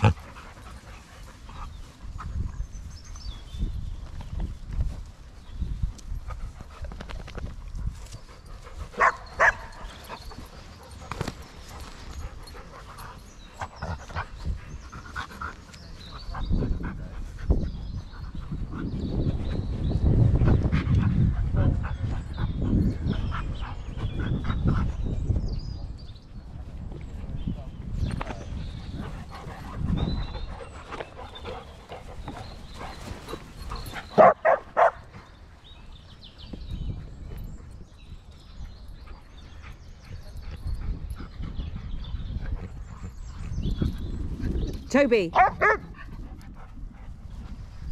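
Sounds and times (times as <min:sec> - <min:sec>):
dog barking: 0:09.0 - 0:09.7, 0:34.2 - 0:35.0, 0:45.4 - 0:45.8
dog panting: 0:28.6 - 0:34.3.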